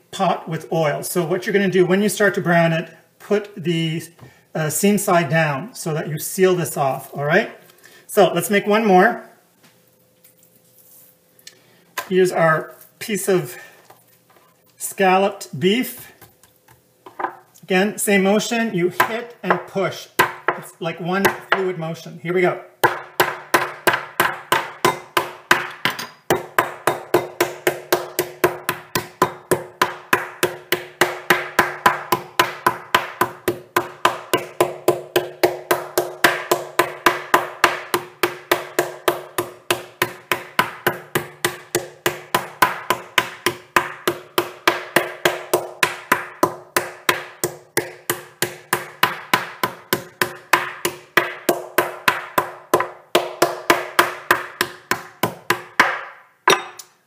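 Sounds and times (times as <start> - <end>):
meat mallet pounding on board: 20.2 - 20.6, 22.8 - 56.8.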